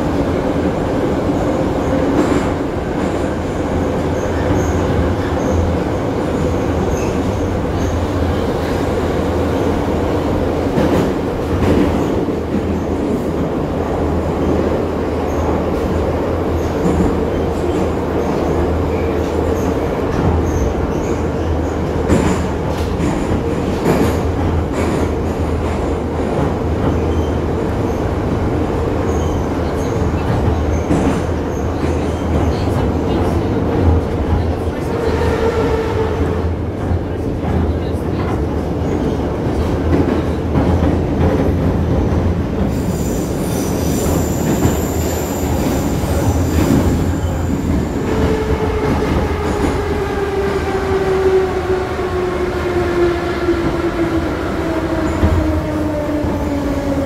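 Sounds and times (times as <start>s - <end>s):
train rumbling: 0.0s - 57.0s.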